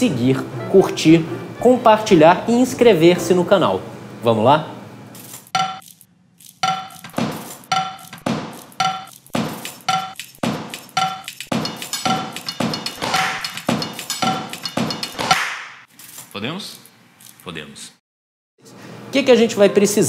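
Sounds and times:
percussion beat of sharp knocks: 0:05.6 - 0:05.9, 0:06.6 - 0:15.9.

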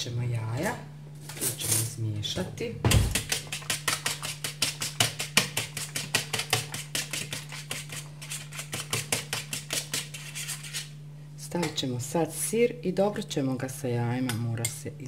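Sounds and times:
fork beating eggs in bowl: 0:02.9 - 0:11.0.

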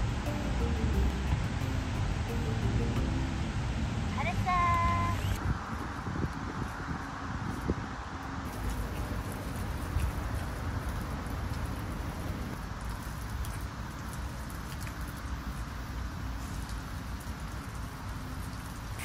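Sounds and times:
low rumble: 0:00.0 - 0:05.7
water splashing from a hose: 0:05.0 - 0:19.0.

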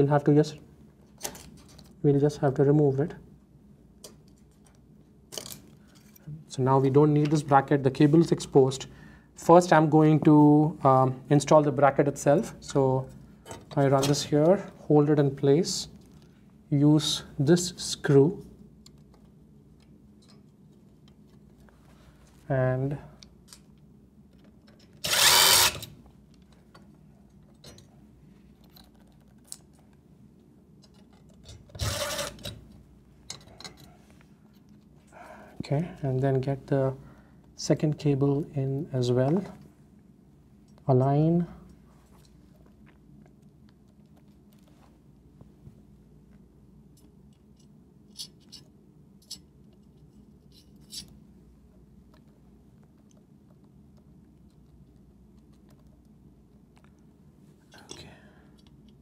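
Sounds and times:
faint low hum: 0:00.0 - 0:59.0
cordless drill driving screws: 0:25.0 - 0:25.9, 0:31.8 - 0:32.4.

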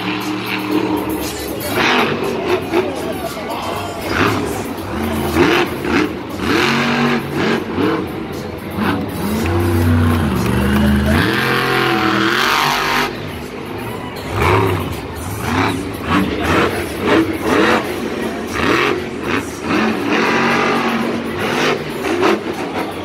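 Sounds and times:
truck engine revving: 0:00.0 - 0:23.0.

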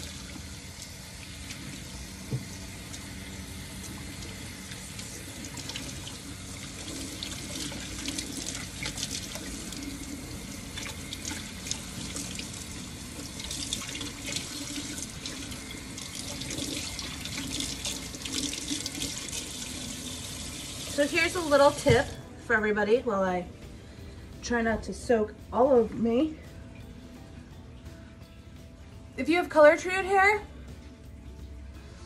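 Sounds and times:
sink tap running: 0:00.0 - 0:22.2.

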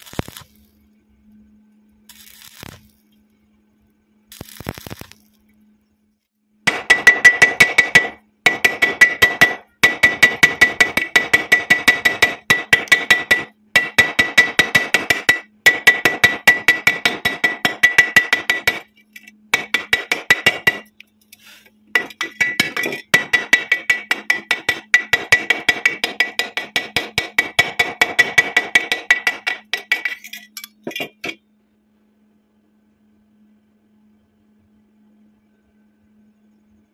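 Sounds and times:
hammer chipping slag off steel: 0:22.0 - 0:31.4.

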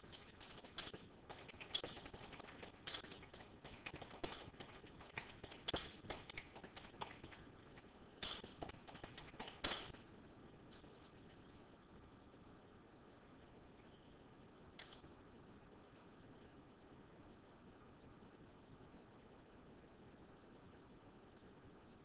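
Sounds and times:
light taps and clicks: 0:00.0 - 0:10.0.

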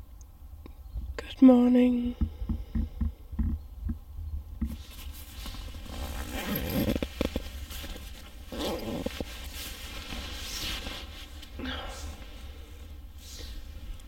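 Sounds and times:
zipper rasping open: 0:04.7 - 0:10.9
fabric rustling: 0:04.7 - 0:14.0.

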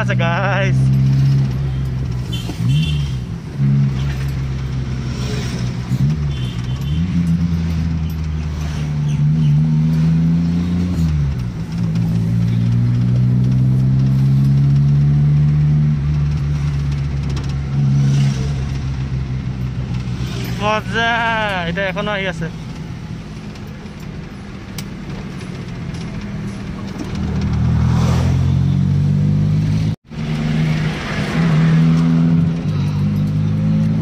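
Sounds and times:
car engine from inside cabin: 0:00.0 - 0:20.9.

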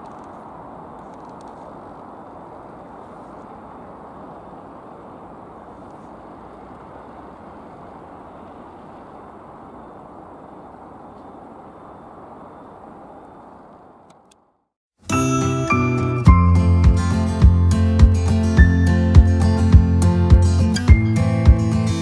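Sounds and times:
jet engines roaring: 0:00.0 - 0:14.3
street traffic: 0:00.0 - 0:22.0.

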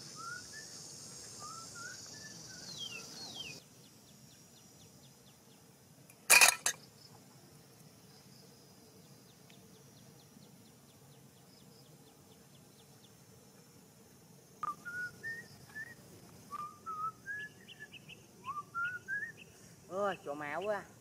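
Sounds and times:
faint outdoor background: 0:00.0 - 0:21.0
gliding whistled notes: 0:14.6 - 0:17.9.

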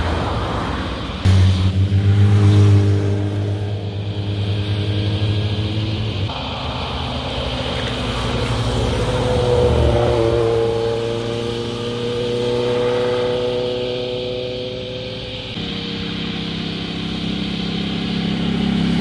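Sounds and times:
motorcycles riding past: 0:01.2 - 0:19.0.

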